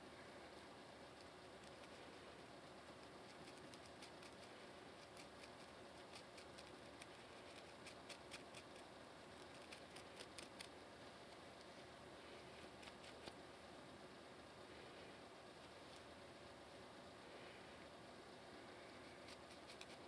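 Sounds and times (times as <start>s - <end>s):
faint steady hiss: 0.0s - 20.0s
fingernails scratching scalp: 19.1s - 20.0s.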